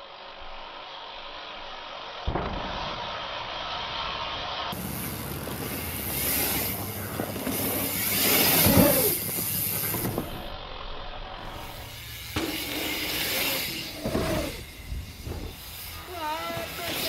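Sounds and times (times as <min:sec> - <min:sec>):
bike tyres on dirt: 0:00.0 - 0:17.0
air rushing: 0:11.4 - 0:17.0.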